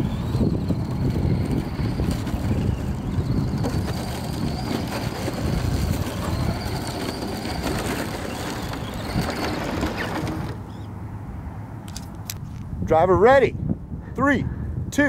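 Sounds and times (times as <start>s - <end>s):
wind on microphone: 0.0s - 10.7s, 12.3s - 15.0s
rc car motor whining: 0.0s - 10.8s.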